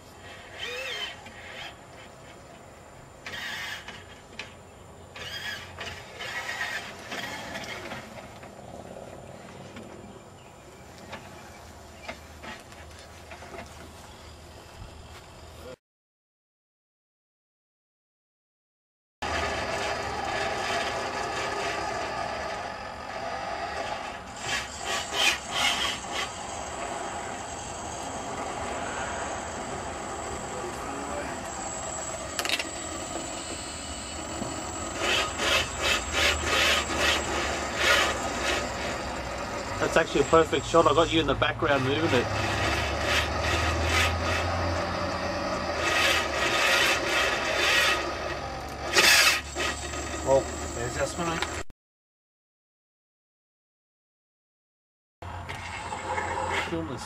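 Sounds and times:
steering motor and chain noise: 5.1 - 9.9, 19.2 - 51.6
rasping rubbing surges: 5.2 - 8.1, 23.2 - 51.1
roller chain running over sprocket: 34.2 - 40.5.

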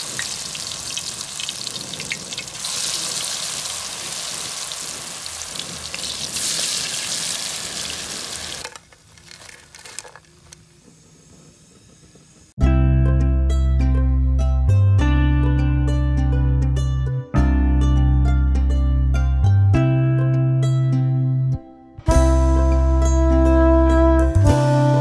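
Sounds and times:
fritters sizzling in hot oil: 0.0 - 8.7.

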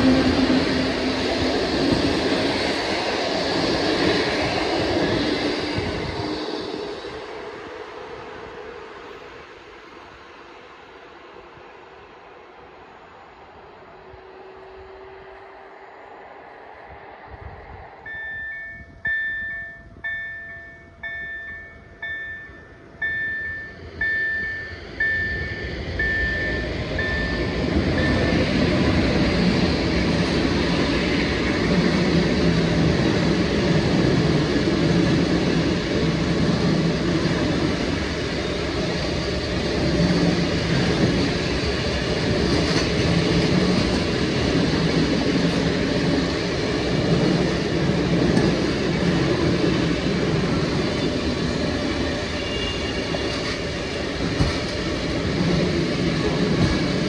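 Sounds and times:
train passing: 0.0 - 57.0
level-crossing bell ringing: 18.1 - 28.6.

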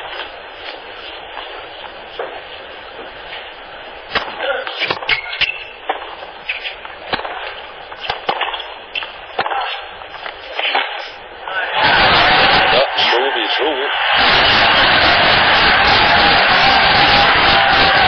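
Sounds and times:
rackets striking tennis ball: 4.1 - 11.2
shoe squeaks: 4.7 - 5.8, 6.4 - 6.8
low crowd noise: 5.7 - 18.0.

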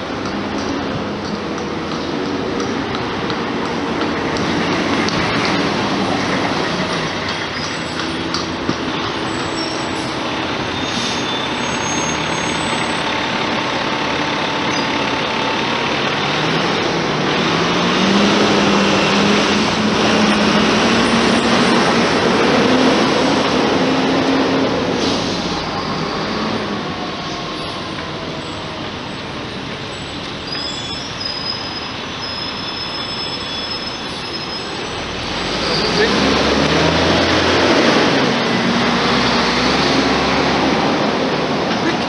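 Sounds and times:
road traffic passing: 0.0 - 42.0
vehicle engine speeding up: 12.4 - 26.9, 35.2 - 41.7.

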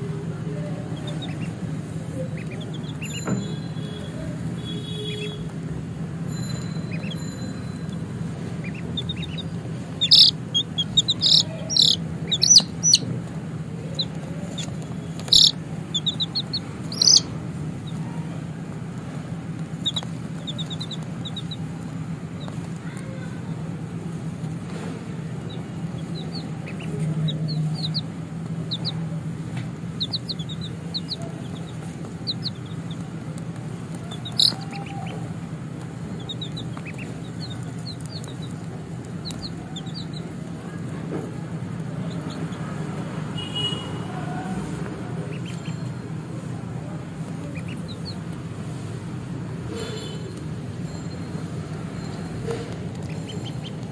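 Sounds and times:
steady low hum: 0.0 - 40.6
baby chicks peeping: 0.0 - 53.9.

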